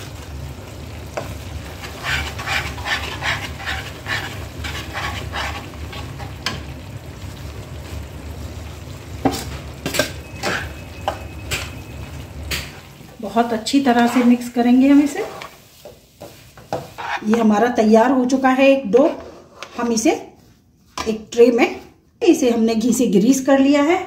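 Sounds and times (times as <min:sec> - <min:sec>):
spatula scraping in pan: 0:01.2 - 0:06.7, 0:09.2 - 0:11.9, 0:13.6 - 0:17.9, 0:18.7 - 0:21.9.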